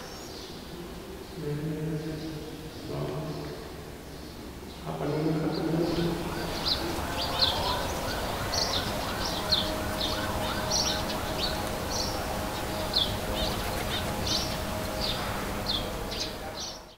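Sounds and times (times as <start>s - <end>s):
birds chirping: 0.0s - 16.9s
rising and falling bird notes: 5.5s - 16.9s.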